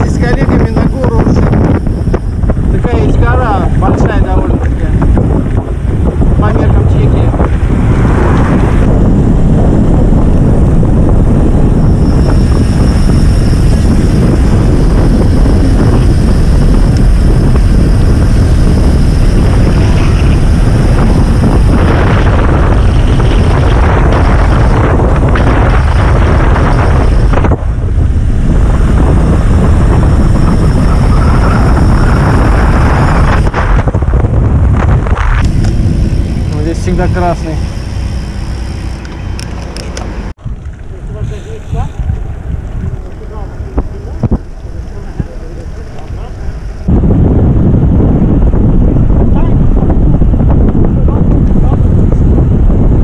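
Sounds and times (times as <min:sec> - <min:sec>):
wind buffeting microphone: 0:00.0 - 0:53.0.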